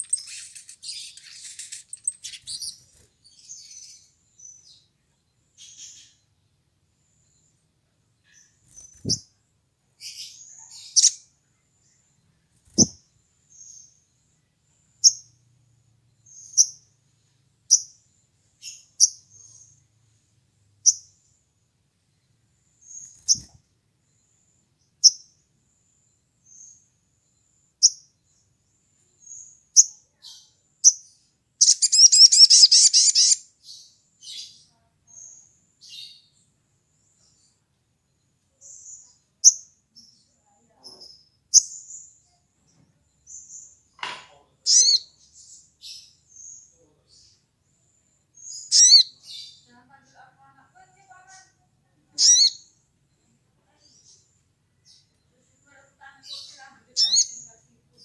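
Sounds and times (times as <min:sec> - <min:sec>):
bird rapid trill: 0:00.0 - 0:03.1, 0:10.8 - 0:11.2, 0:12.6 - 0:13.0, 0:23.0 - 0:23.6, 0:31.6 - 0:33.4, 0:48.6 - 0:49.0, 0:52.2 - 0:52.6, 0:57.0 - 0:57.4
sunbird chirping: 0:00.0 - 0:58.0.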